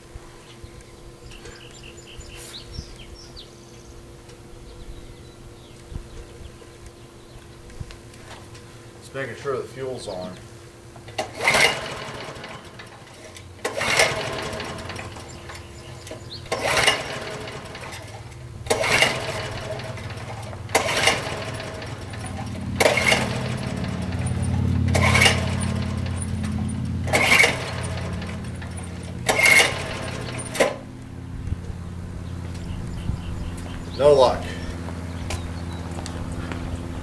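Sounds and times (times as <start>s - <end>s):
lawn mower starter cord pulls: 11.0s - 31.0s.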